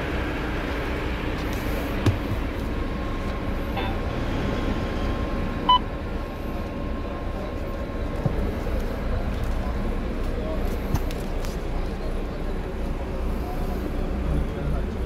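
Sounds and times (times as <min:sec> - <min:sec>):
bus engine idling: 0:00.0 - 0:15.0
short electronic beep: 0:03.8 - 0:04.0.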